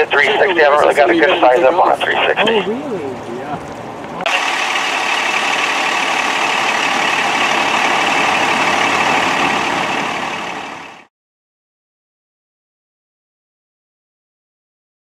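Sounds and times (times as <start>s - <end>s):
diesel engine idling: 0.0s - 11.1s.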